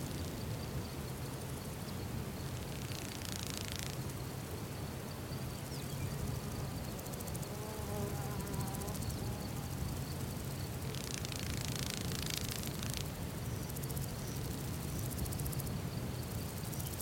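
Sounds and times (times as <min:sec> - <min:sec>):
insects buzzing: 0:00.0 - 0:17.0
wavering insect drone: 0:00.0 - 0:17.0.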